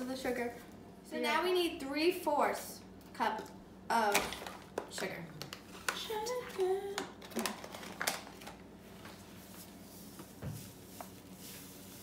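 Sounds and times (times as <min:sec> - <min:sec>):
paper bag crinkling and rustling: 0:07.2 - 0:09.2.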